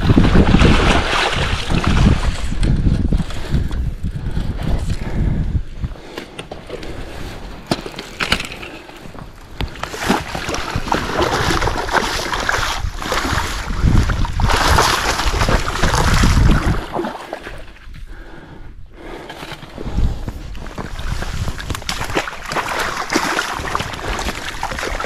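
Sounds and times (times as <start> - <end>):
fish thrashing and splashing water: 0.0 - 2.6, 9.8 - 17.7, 20.9 - 25.0.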